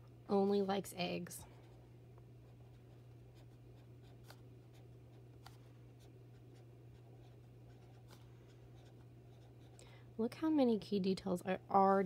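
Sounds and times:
steady low hum: 0:00.0 - 0:12.0
marker scratching on paper: 0:02.5 - 0:09.8.

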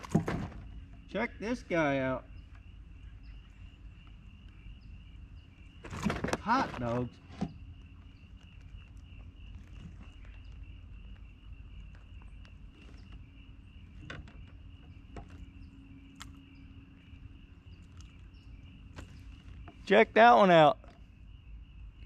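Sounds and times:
insects chirping: 0:00.0 - 0:22.0
low steady rumble: 0:07.0 - 0:19.9.

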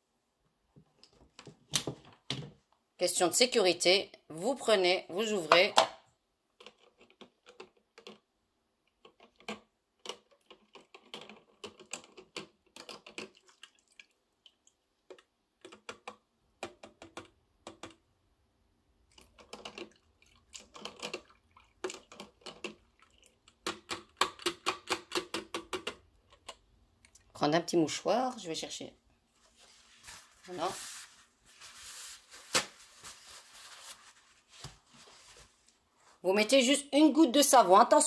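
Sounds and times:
plastic basket clicking and rattling: 0:06.6 - 0:08.3, 0:09.0 - 0:13.4, 0:15.1 - 0:18.0, 0:19.1 - 0:20.0, 0:20.6 - 0:22.9, 0:23.5 - 0:26.6
water dripping: 0:12.8 - 0:15.2, 0:19.1 - 0:23.7.

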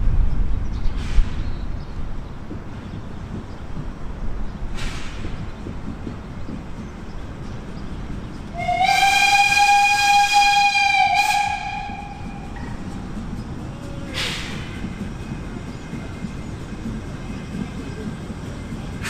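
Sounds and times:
low train rumble: 0:00.0 - 0:19.0
steam locomotive whistle: 0:08.5 - 0:12.8.

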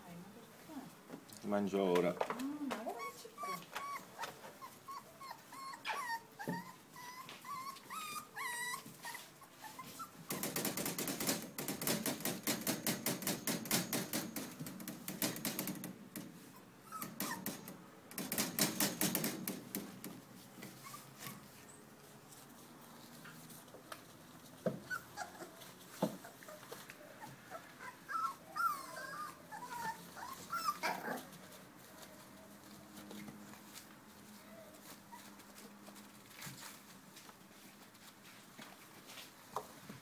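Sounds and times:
puppies whimpering: 0:03.0 - 0:10.2, 0:24.8 - 0:31.2
crinkling of puppy pads: 0:29.6 - 0:40.0.

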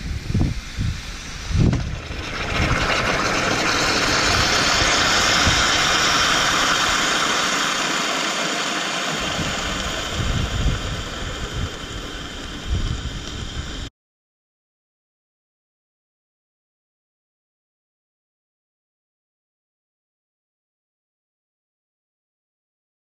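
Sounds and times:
wind rumble on microphone: 0:00.0 - 0:07.1, 0:09.2 - 0:13.9
steam hissing from pouch: 0:00.0 - 0:13.9.

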